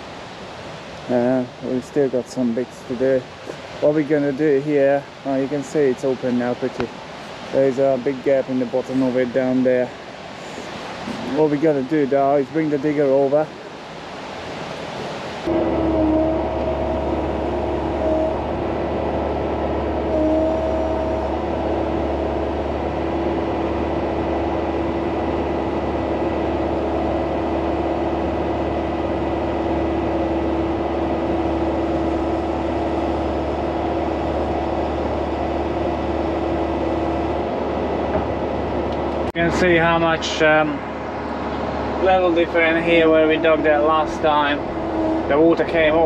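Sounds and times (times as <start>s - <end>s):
steady whine: 1.0s - 46.0s
diesel engine running: 14.4s - 46.0s.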